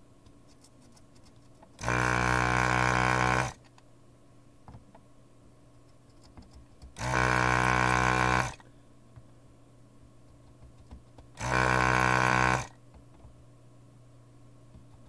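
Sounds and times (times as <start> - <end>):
desoldering pump buzzing: 1.8 - 3.6, 7.0 - 8.6, 11.4 - 12.8.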